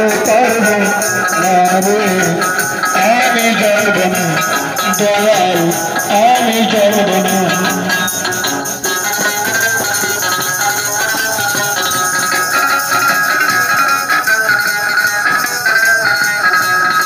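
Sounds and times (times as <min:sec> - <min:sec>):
man singing: 0:00.0 - 0:08.3
plucked lute through amplifier: 0:00.0 - 0:17.0
shaken hand percussion: 0:00.0 - 0:17.0.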